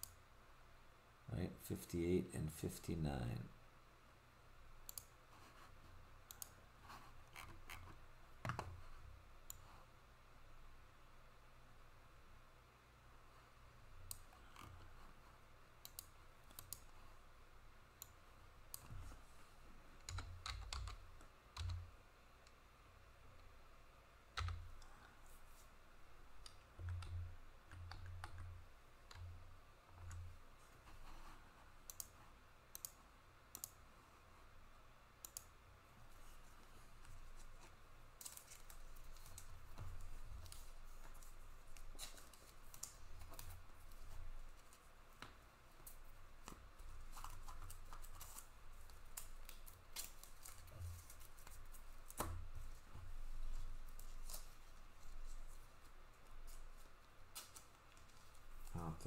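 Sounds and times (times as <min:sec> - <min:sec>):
faint clicks and light taps: 0:15.8 - 0:17.0, 0:26.4 - 0:33.8, 0:35.2 - 0:58.8.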